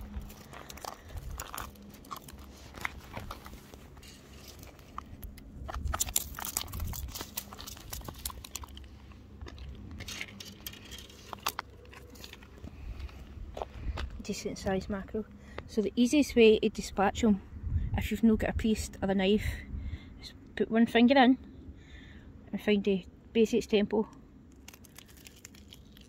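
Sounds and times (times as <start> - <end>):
fish flapping on tarmac: 5.7 - 8.8.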